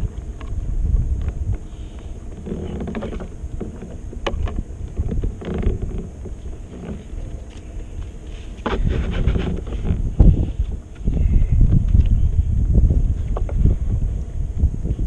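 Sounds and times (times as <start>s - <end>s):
wind rumble on microphone: 0.0s - 15.0s
fishing gear knocking and rattling: 2.3s - 11.1s.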